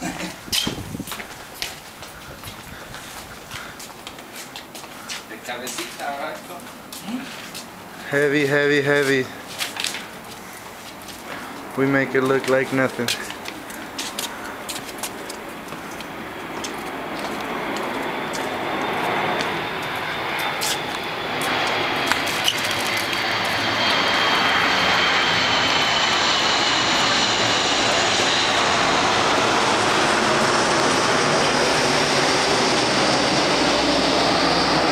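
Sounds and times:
engine roar: 15.2s - 34.9s.

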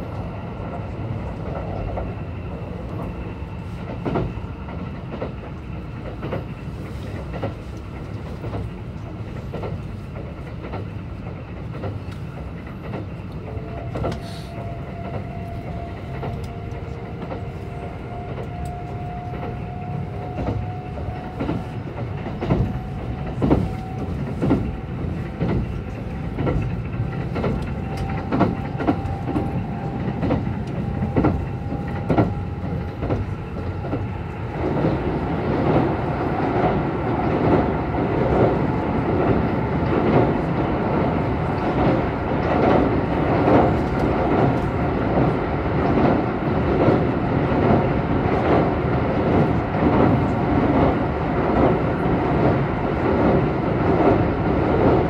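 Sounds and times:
train rumbling on bridge: 0.0s - 55.0s.

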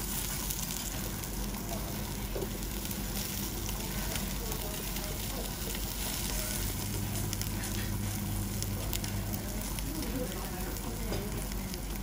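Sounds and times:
fat crackling and popping: 0.0s - 12.0s
meat sizzling on a grill: 0.0s - 12.0s.

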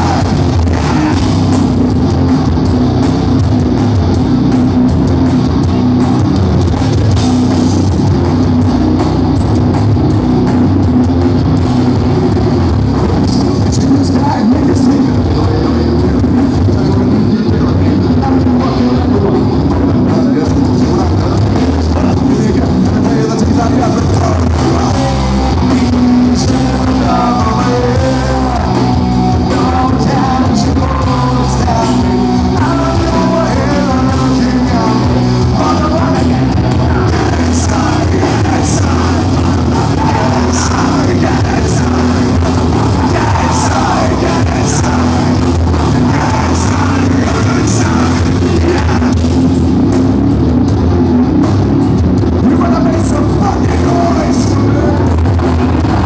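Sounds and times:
man singing lead vocal: 0.0s - 2.3s, 12.7s - 49.6s, 52.3s - 56.0s
live rock band playing: 0.0s - 56.0s.

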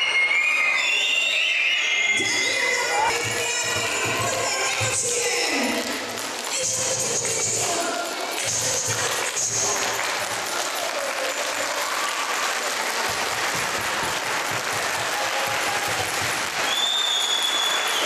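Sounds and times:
steady high tone: 0.0s - 4.4s
crowd clapping: 2.2s - 18.0s.

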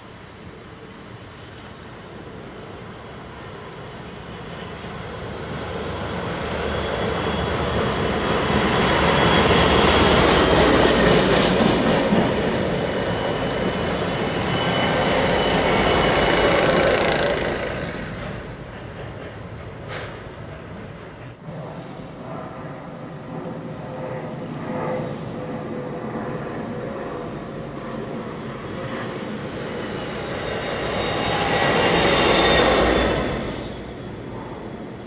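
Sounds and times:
diesel locomotives passing: 0.0s - 35.0s
wheels rumbling on rails: 4.9s - 21.8s
high wheel squeal: 8.6s - 11.1s, 13.0s - 18.2s, 29.7s - 33.9s.

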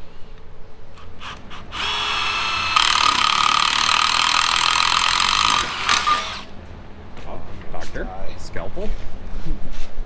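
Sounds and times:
cordless drill boring metal: 1.0s - 6.5s.

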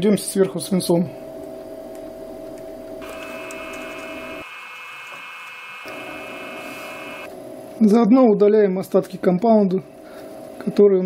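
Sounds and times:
high electric whine: 1.3s - 7.4s.

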